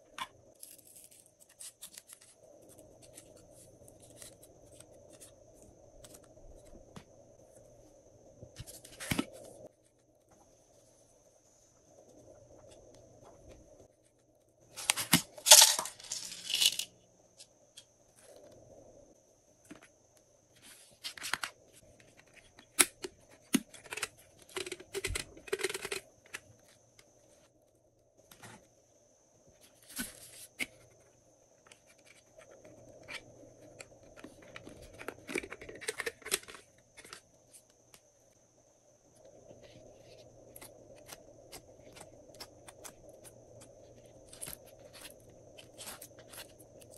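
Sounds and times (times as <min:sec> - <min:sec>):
containers shaken and rattling: 0:14.8 - 0:16.9
handling noise: 0:14.8 - 0:16.9
small pieces ticking into dish: 0:15.4 - 0:16.9.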